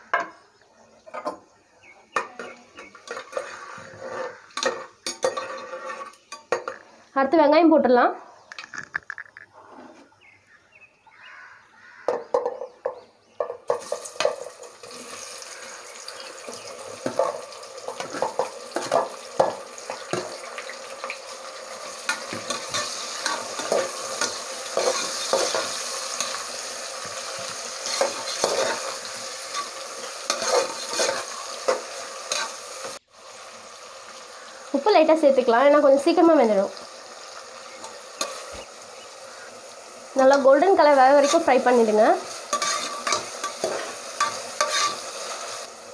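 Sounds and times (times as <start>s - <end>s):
ladle scraping metal pot: 2.4s - 6.8s, 16.5s - 20.4s, 21.8s - 32.6s, 41.0s - 45.7s
onions sizzling in hot oil: 2.4s - 7.1s, 13.7s - 45.9s.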